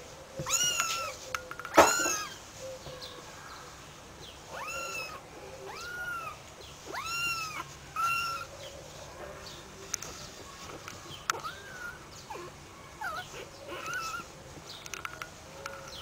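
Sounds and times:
kittens mewing: 0.4 - 2.4, 4.4 - 8.5, 10.7 - 14.3.

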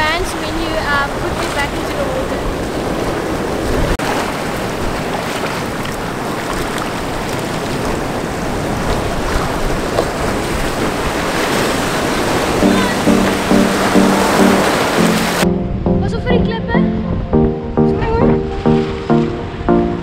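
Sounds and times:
ocean surf washing over rocks: 0.0 - 15.4.

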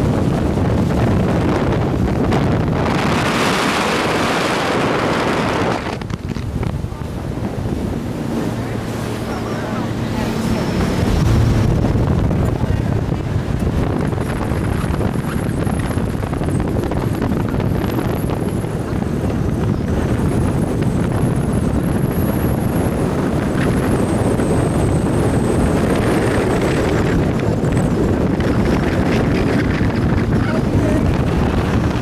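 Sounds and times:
boat engine: 0.0 - 32.0
rushing water: 0.0 - 32.0
wind buffeting microphone: 0.0 - 32.0.

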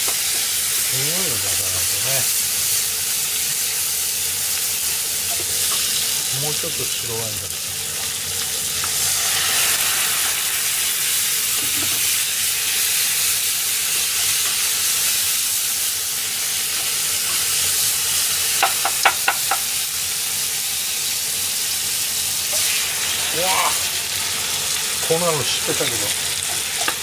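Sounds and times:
food sizzling in a frying pan: 0.0 - 27.0
spatula tapping against pan: 18.6 - 19.7.

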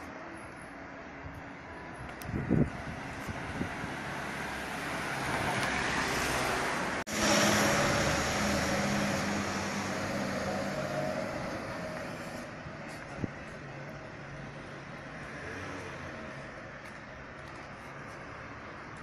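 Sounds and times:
vehicle passing: 2.3 - 12.7.

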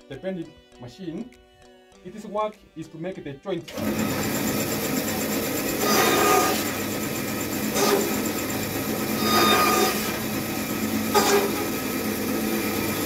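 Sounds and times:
woodworking machine cutting wood: 3.7 - 13.0.

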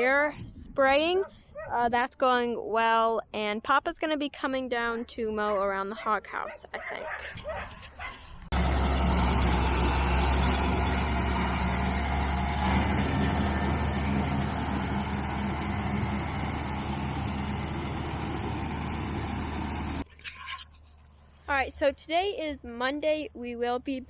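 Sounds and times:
tractor diesel engine droning: 8.5 - 20.1.

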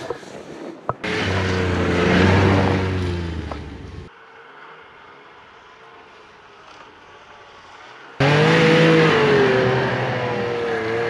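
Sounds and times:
snowmobile engine running: 1.0 - 4.1, 6.5 - 11.0.

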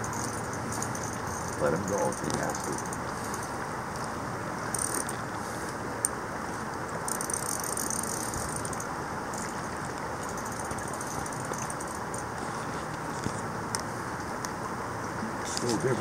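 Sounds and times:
fly reel ratchet buzzing: 0.0 - 3.5, 4.7 - 5.1, 7.1 - 9.5
river water rushing: 0.0 - 16.0.

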